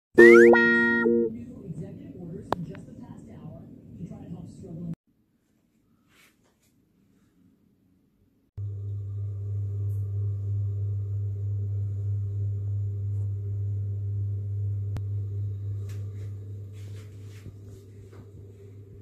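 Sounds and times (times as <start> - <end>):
low mechanical hum: 8.6 - 19.0.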